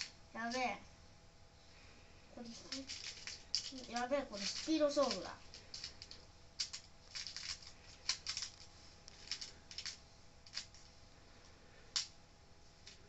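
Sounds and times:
small parts clicking and scraping: 0:02.4 - 0:12.2, 0:12.8 - 0:13.0.

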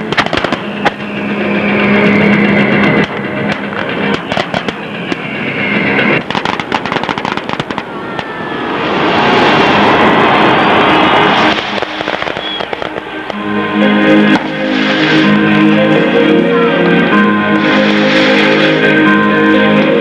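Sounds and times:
fireworks bangs and crackles: 0:00.0 - 0:01.5, 0:02.8 - 0:13.4.

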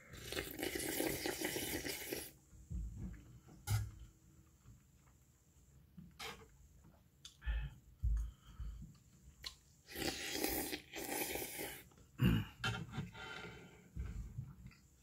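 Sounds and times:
slurping from a spoon: 0:00.0 - 0:02.4, 0:09.9 - 0:11.9
person chewing: 0:00.1 - 0:02.3, 0:09.4 - 0:11.9.

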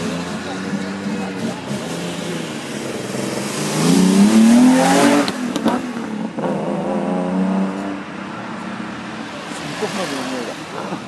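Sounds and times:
sports car engine revving: 0:00.0 - 0:08.2.

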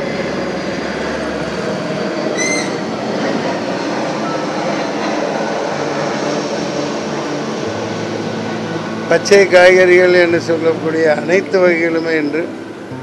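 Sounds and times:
steady background noise: 0:00.0 - 0:13.0
short high-pitched squeak: 0:02.4 - 0:02.9.

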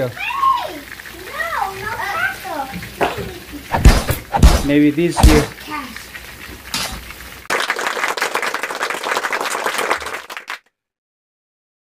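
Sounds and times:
quiet oil sizzle: 0:00.0 - 0:07.5
deep-frying oil crackling: 0:00.0 - 0:10.4.

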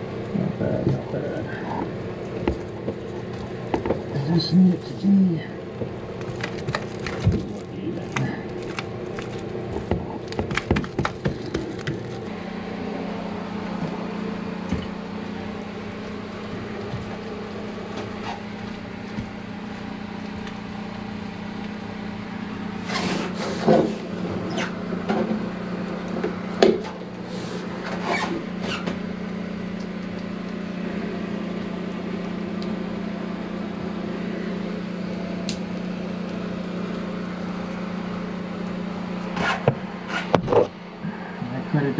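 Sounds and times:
steady low hum: 0:00.0 - 0:41.9
crackles and squeaks: 0:22.8 - 0:24.8, 0:27.8 - 0:29.0.

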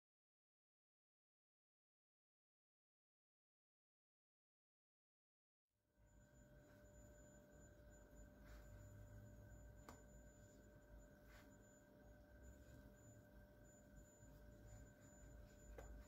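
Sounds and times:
faint steady high tone: 0:05.9 - 0:16.0
low hum: 0:06.0 - 0:16.0.

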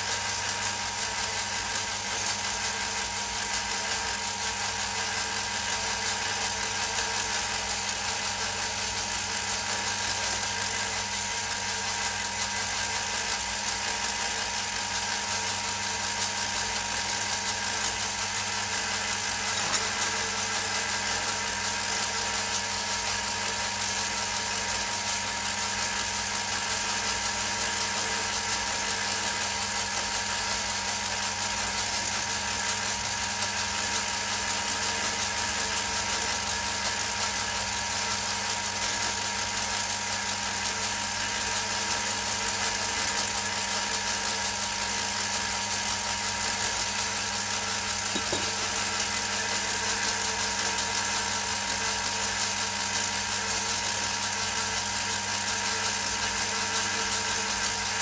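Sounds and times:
metal lathe running: 0:00.0 - 0:58.0.

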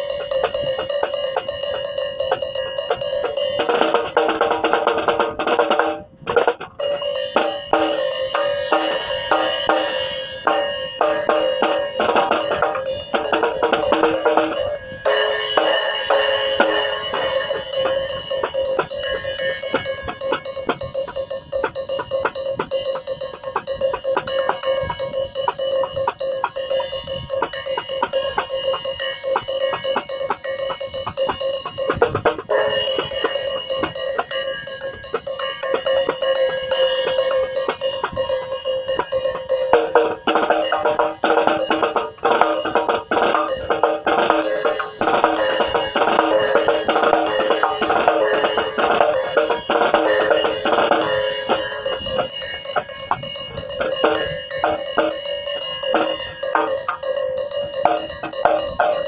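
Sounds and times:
ride cymbal pattern: 0:00.0 - 0:59.0
snare drum strokes: 0:29.4 - 0:55.2.

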